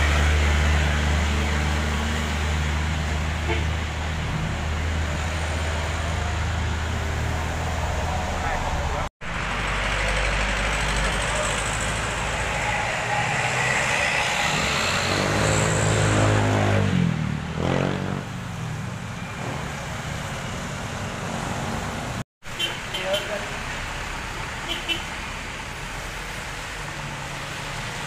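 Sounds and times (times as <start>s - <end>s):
heavy truck engine passing: 0.0s - 22.2s
tyres hissing on wet road: 21.4s - 28.0s.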